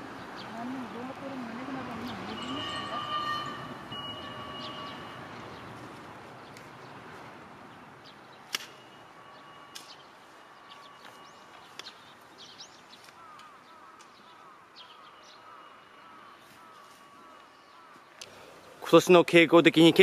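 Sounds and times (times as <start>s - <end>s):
small birds chirping: 0.0s - 19.2s.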